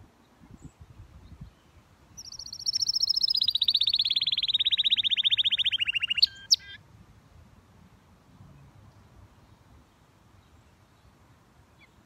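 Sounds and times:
canary trilling: 2.2 - 6.8.

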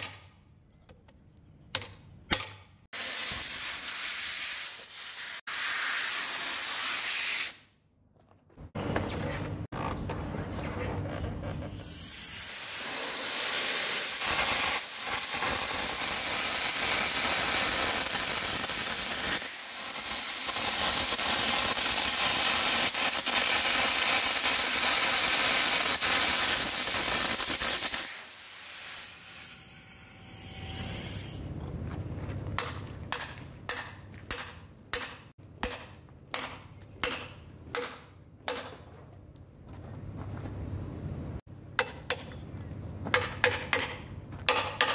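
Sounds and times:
air arc gouging hissing: 11.7 - 31.5.

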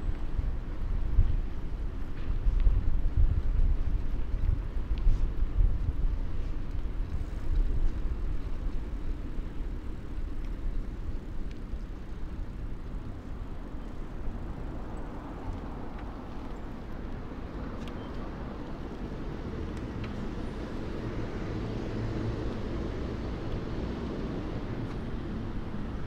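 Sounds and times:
wind buffeting microphone: 0.0 - 26.0
road traffic rumbling: 5.2 - 26.0.

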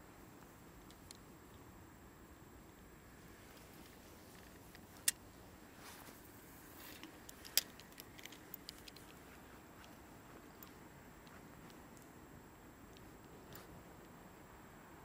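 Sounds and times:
faint steady hiss: 0.0 - 15.0
light ticks: 6.9 - 12.2, 12.9 - 14.2.

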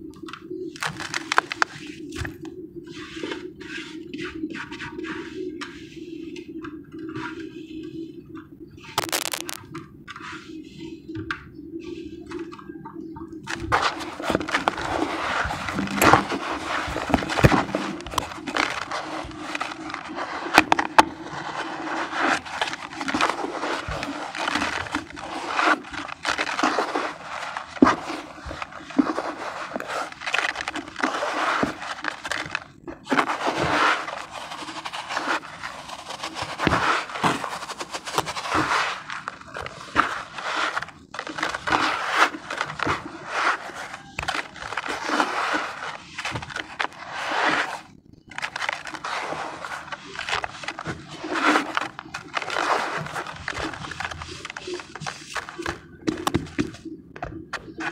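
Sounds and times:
damp sand crunching by hand: 9.0 - 9.6, 13.9 - 47.8, 48.4 - 55.6.

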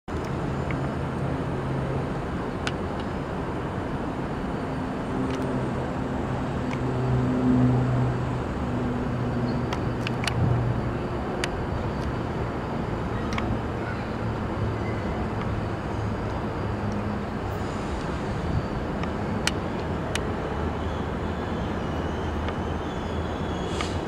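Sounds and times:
distant diesel train drone: 0.1 - 24.0
outdoor background noise: 0.1 - 24.0.

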